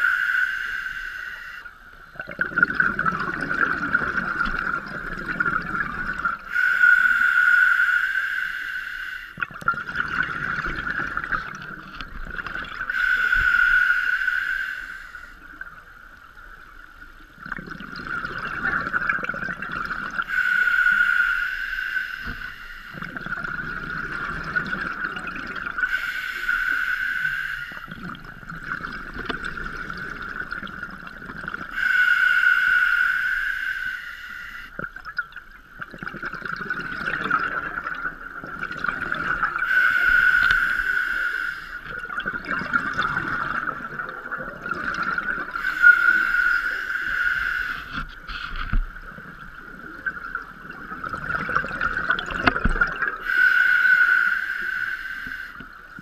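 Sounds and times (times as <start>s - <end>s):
exhaled bubbles bursting: 2.1s - 6.5s, 9.4s - 13.4s, 17.3s - 20.3s, 22.9s - 25.9s, 27.8s - 31.8s, 34.8s - 39.7s, 41.8s - 46.4s, 47.7s - 53.2s
diver breathing through regulator: 6.5s - 9.4s, 12.9s - 15.4s, 20.2s - 23.1s, 25.8s - 28.0s, 31.7s - 34.8s, 39.6s - 41.9s, 45.3s - 48.8s, 53.2s - 55.6s.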